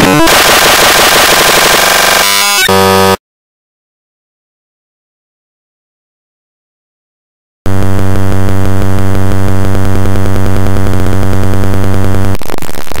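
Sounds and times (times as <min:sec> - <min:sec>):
loud distorted electronic buzz: 0:00.0 - 0:03.2, 0:07.7 - 0:13.0.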